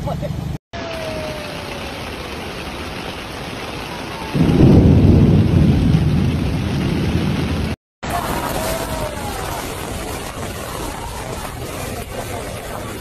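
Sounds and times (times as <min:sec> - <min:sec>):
heavy rain falling: 0:00.8 - 0:13.0
low rumble of thunder: 0:04.2 - 0:09.9.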